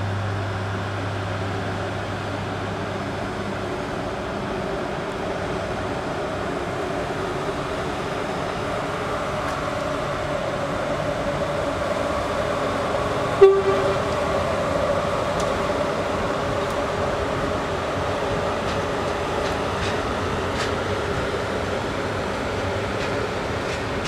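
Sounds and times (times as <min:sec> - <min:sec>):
electric locomotive hum: 0:00.0 - 0:24.0
train horn toot: 0:13.4 - 0:14.3.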